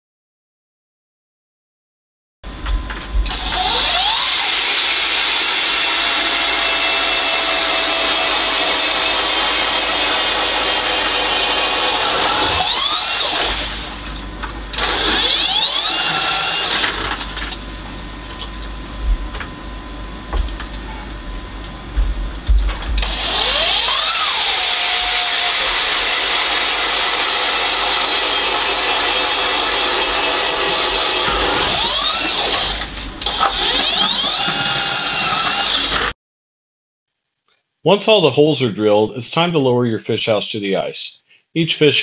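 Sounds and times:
power ice auger drilling: 3.3 - 14.1, 14.7 - 17.6, 23.0 - 36.1.

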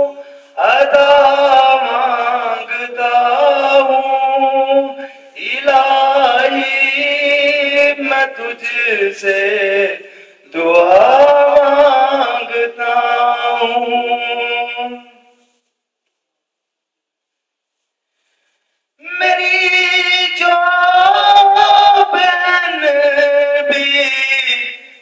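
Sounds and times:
man singing unaccompanied: 0.0 - 15.2, 19.0 - 25.0.

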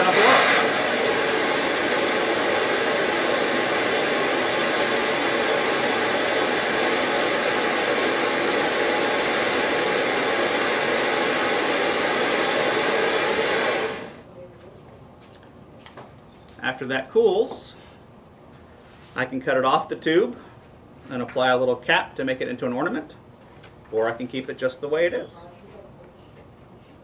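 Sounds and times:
torch flame hissing: 0.0 - 14.2.

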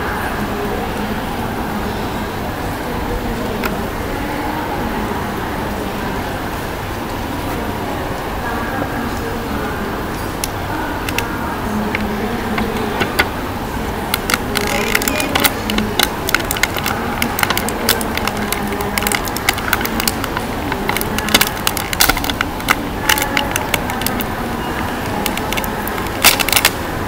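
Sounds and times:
plastic bag crinkling: 10.4 - 27.0.

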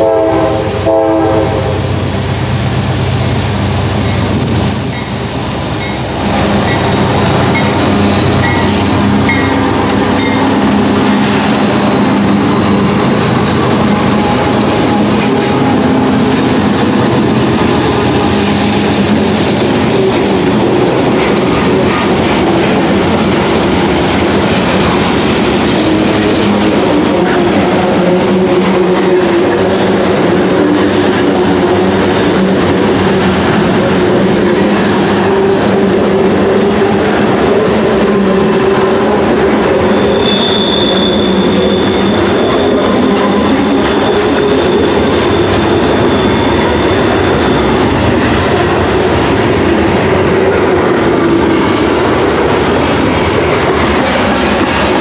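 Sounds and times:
steel wheels rumbling on rail: 0.0 - 55.0
high wheel squeal: 7.5 - 15.9, 39.7 - 48.2.

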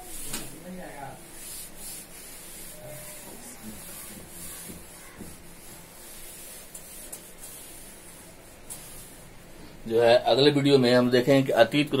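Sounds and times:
cloth wiping blackboard: 0.0 - 9.3.

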